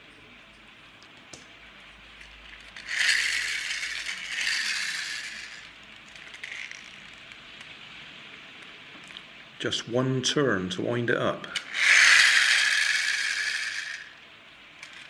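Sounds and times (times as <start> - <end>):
clockwork gear train running: 2.4 - 7.3, 11.5 - 15.0.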